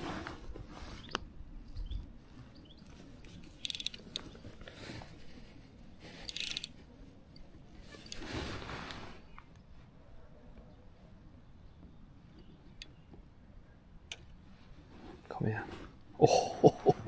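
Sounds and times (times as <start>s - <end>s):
fishing reel clicking: 3.6s - 4.0s, 6.2s - 6.7s.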